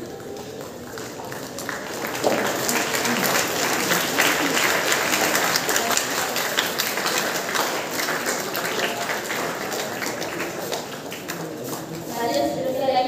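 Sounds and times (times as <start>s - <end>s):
crowd clapping: 0.0s - 12.6s.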